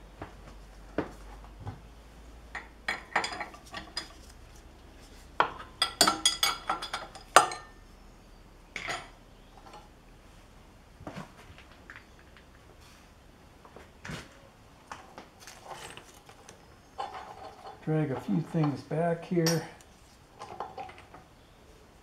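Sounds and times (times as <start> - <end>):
wrench clinking against metal: 19.4 - 19.8.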